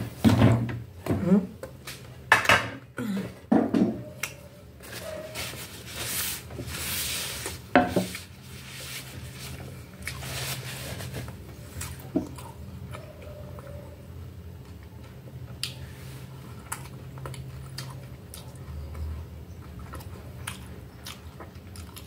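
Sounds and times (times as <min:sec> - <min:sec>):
paper napkin rubbing on wood: 0:04.8 - 0:09.6.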